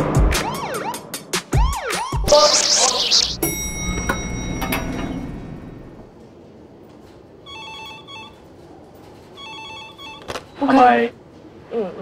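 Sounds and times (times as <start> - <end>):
high steady tones: 2.3 - 5.9
telephone ringing: 3.4 - 6.0, 7.5 - 8.5, 9.4 - 10.4.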